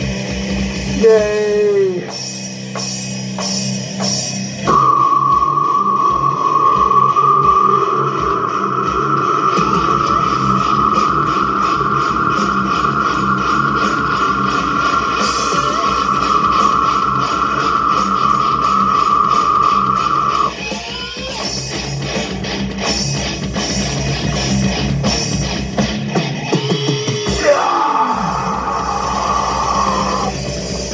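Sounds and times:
distorted electric guitar: 0:00.0 - 0:30.9
drums: 0:00.0 - 0:30.9
guitar note sliding down: 0:04.6 - 0:21.4.

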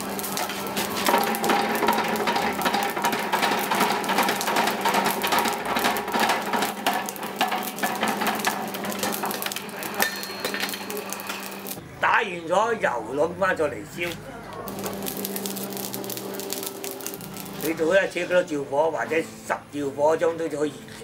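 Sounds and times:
rapid hammer blows on iron: 0:00.0 - 0:11.8.

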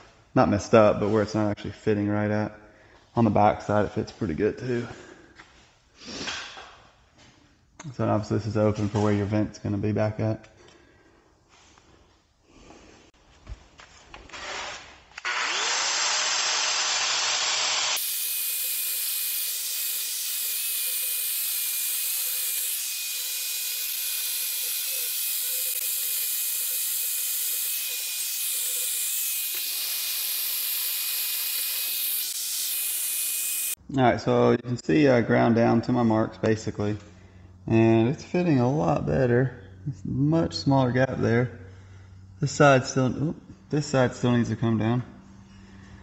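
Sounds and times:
angle grinder grinding steel: 0:14.4 - 0:33.8
high grinder whine: 0:15.2 - 0:33.8.

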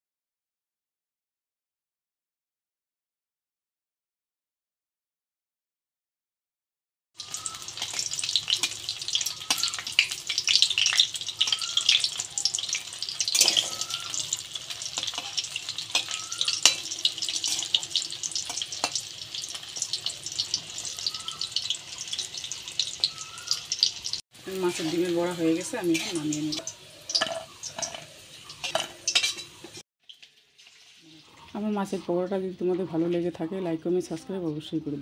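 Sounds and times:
food deep-frying in oil: 0:07.2 - 0:33.2
metal spatula scraping pan: 0:07.8 - 0:23.1, 0:24.7 - 0:29.8.

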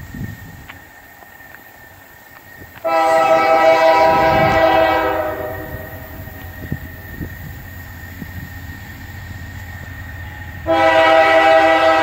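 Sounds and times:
locomotive air horn blast: 0:02.8 - 0:06.4, 0:10.6 - 0:12.0.

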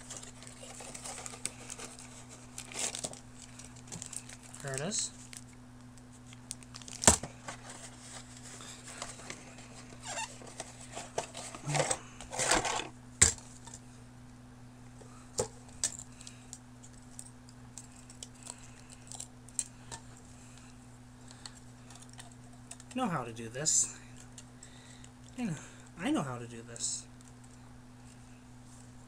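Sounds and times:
plastic packaging crinkling: 0:00.0 - 0:13.8.

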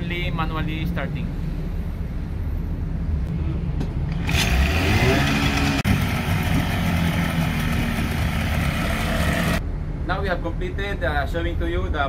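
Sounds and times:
outboard motor running: 0:04.1 - 0:09.6
propeller churning water: 0:04.1 - 0:09.6.

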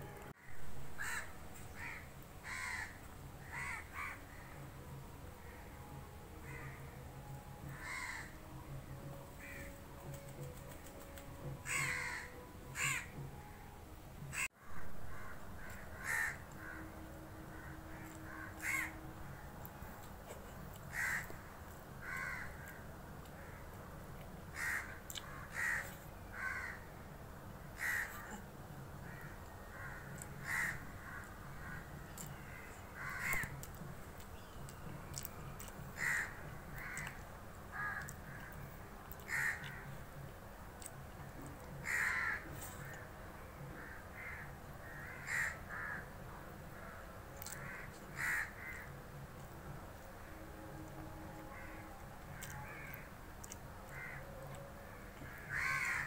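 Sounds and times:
crows cawing: 0:01.0 - 0:04.6, 0:06.4 - 0:06.9, 0:07.6 - 0:08.4, 0:09.4 - 0:09.8, 0:11.6 - 0:13.2, 0:14.3 - 0:19.4, 0:20.8 - 0:23.7, 0:24.5 - 0:26.9, 0:27.8 - 0:28.4, 0:29.0 - 0:33.7, 0:36.0 - 0:40.0, 0:41.8 - 0:43.0, 0:43.7 - 0:46.1, 0:46.8 - 0:49.0, 0:51.5 - 0:56.0.

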